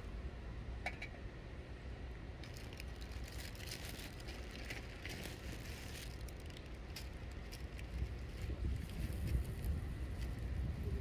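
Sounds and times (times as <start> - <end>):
wind on microphone: 7.9 - 11.0.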